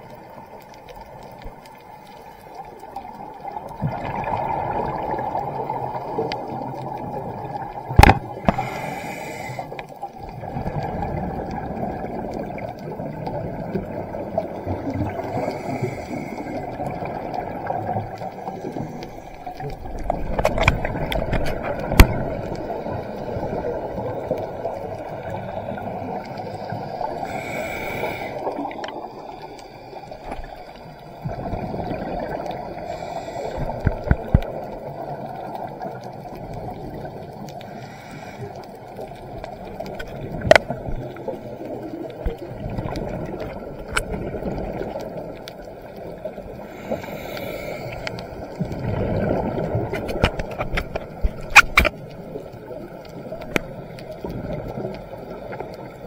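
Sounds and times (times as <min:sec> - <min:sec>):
exhaled bubbles gurgling: 0:00.0 - 0:56.0
regulator hissing inhale: 0:08.4 - 0:10.0, 0:15.1 - 0:16.8, 0:18.4 - 0:19.7, 0:25.4 - 0:31.2, 0:32.8 - 0:34.0, 0:37.6 - 0:38.9, 0:46.5 - 0:48.6.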